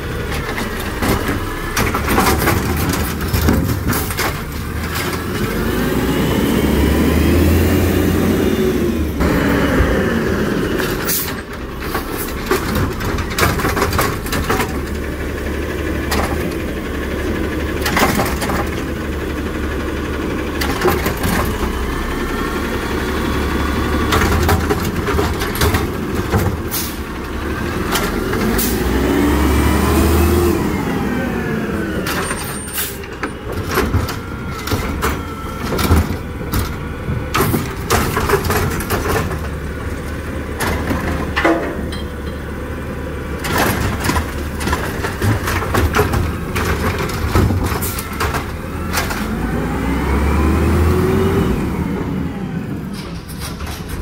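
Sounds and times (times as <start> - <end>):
clanks and knocks of cart and arm: 0.0 - 5.9, 10.7 - 22.1, 23.8 - 29.0, 32.0 - 42.7, 43.3 - 49.6, 52.8 - 54.0
garbage truck engine revving: 0.0 - 54.0.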